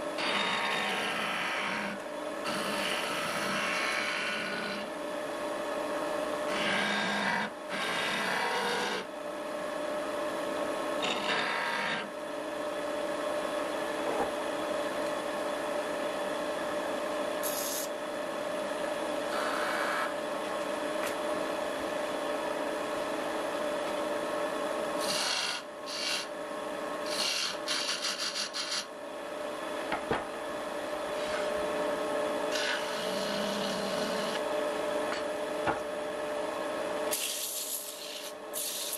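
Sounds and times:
wood lathe humming: 0.0 - 4.9, 6.4 - 9.1, 11.0 - 12.2, 19.2 - 20.2, 25.0 - 26.4, 31.0 - 34.4
turning tool scraping wood: 11.0 - 12.1, 27.1 - 28.8, 32.5 - 34.4.

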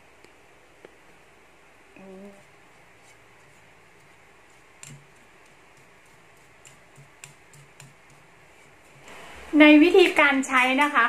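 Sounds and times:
faint steady hiss: 0.0 - 11.0
brush clicking against a bowl: 4.5 - 9.0.

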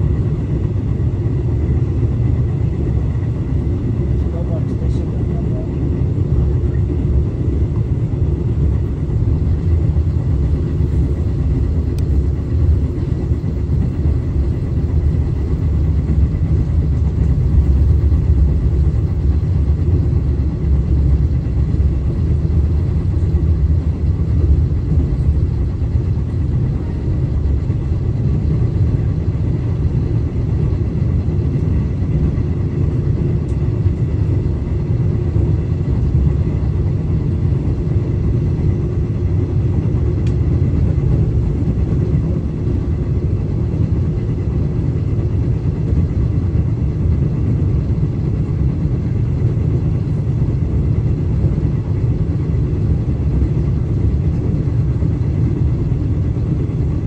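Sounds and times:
train rumbling on track: 0.0 - 57.0.

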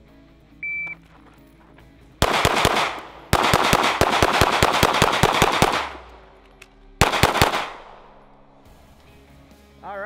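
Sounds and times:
pistol shots in rapid strings: 2.2 - 6.4, 7.0 - 8.4.

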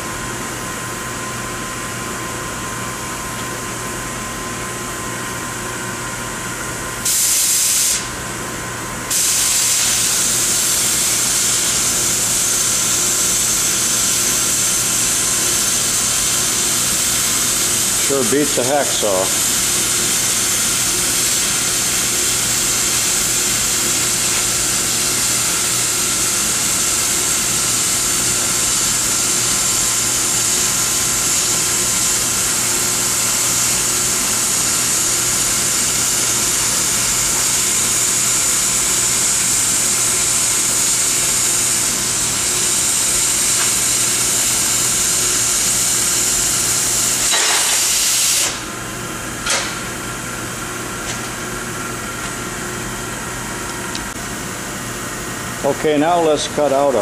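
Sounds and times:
cutting torch hissing: 7.0 - 8.2, 9.1 - 48.7.

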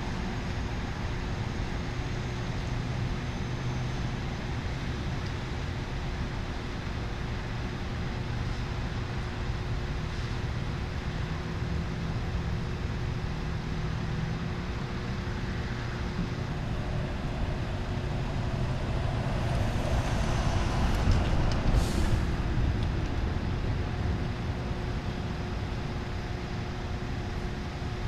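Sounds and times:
diesel truck engines idling: 0.1 - 28.0
air hiss: 19.4 - 22.5.

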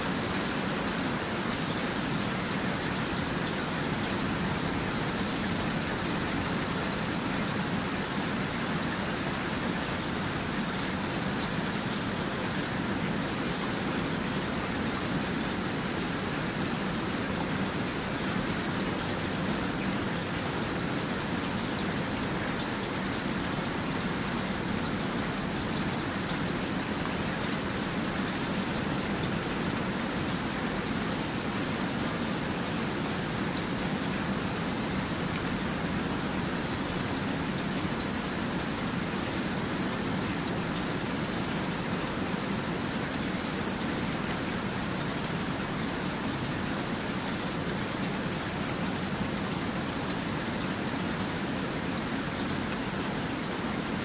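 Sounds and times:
steady rain falling: 0.0 - 54.0.

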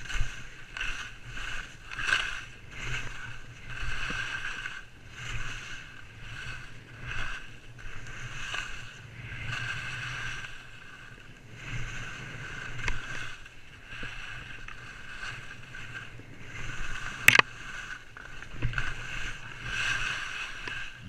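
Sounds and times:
skis swishing through snow: 0.0 - 21.0
sharp clack: 17.3 - 17.5.

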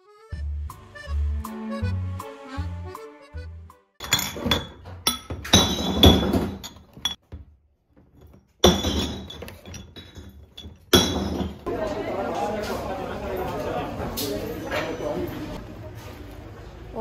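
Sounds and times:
dishware clinking: 4.0 - 7.2, 8.2 - 11.7, 13.4 - 15.6.

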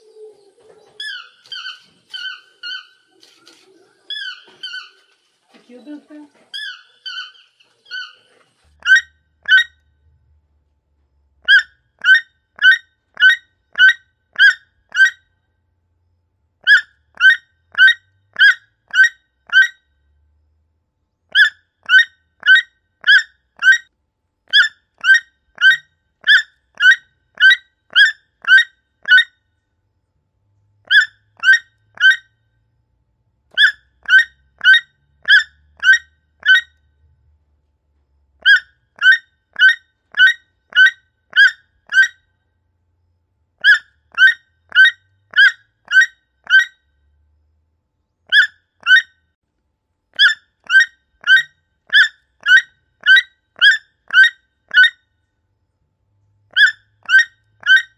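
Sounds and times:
toucan calling: 0.0 - 5.3, 6.5 - 9.8, 11.4 - 15.2, 16.6 - 19.8, 21.3 - 23.9, 24.5 - 29.3, 30.9 - 32.4, 33.5 - 36.8, 38.4 - 42.2, 43.6 - 46.8, 48.3 - 49.1, 50.2 - 55.0, 56.5 - 57.9.

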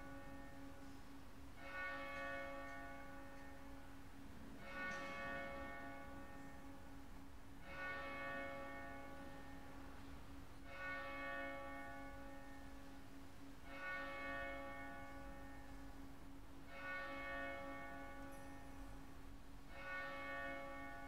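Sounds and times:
church bell tolling: 0.0 - 21.0.

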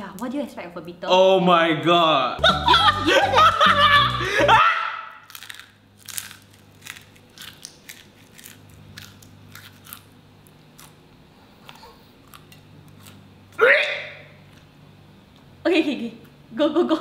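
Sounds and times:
person chewing crunchy beetle: 5.2 - 13.2.

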